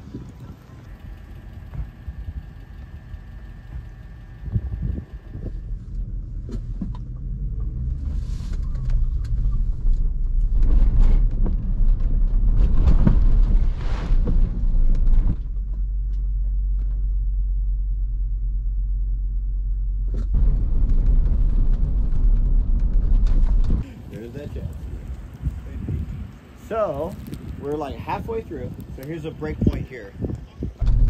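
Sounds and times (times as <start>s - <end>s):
vehicle engine and tyres rumbling: 0.0s - 31.0s.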